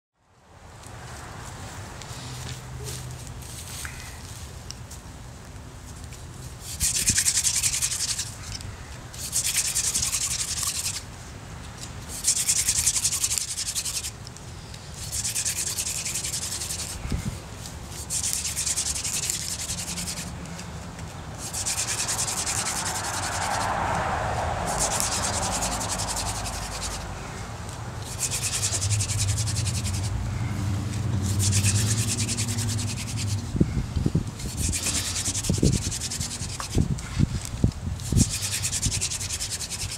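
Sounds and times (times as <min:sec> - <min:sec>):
wooden spindle scraping fireboard: 0:06.6 - 0:08.6, 0:09.2 - 0:11.1, 0:12.1 - 0:14.2, 0:15.0 - 0:17.3, 0:18.0 - 0:20.6, 0:21.4 - 0:27.1, 0:28.0 - 0:30.2, 0:31.2 - 0:33.6, 0:34.4 - 0:39.9.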